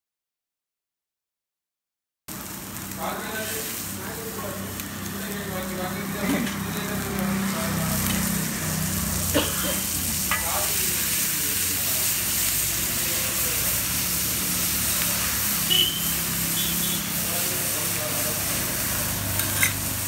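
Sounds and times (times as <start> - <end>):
vegetables sizzling on iron griddle: 2.3 - 20.0
metal spatula stirring: 10.2 - 10.8, 19.3 - 19.9.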